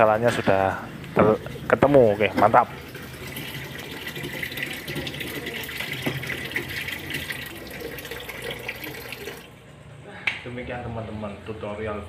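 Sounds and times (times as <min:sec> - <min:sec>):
water trickling and splashing: 0:01.0 - 0:09.6.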